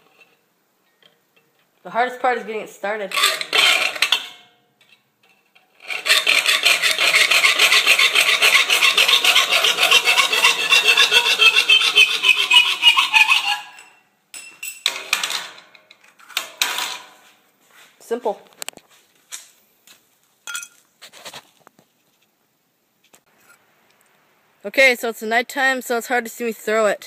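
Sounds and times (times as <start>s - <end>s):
hand file rasping on metal: 3.2s - 4.2s, 5.8s - 13.9s.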